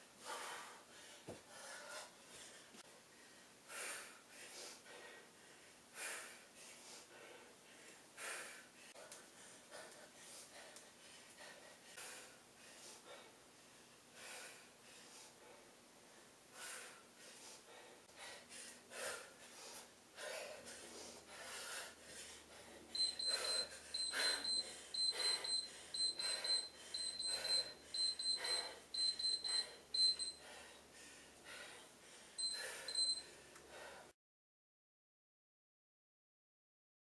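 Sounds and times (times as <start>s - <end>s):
heavy breathing: 0.2s - 34.1s
high-pitched timer beeps: 23.0s - 30.4s, 32.4s - 33.2s.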